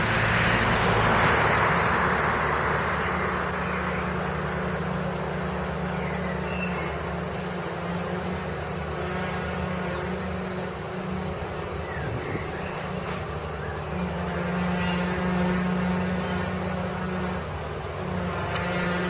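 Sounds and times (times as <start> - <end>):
diesel engine humming: 0.0 - 19.0.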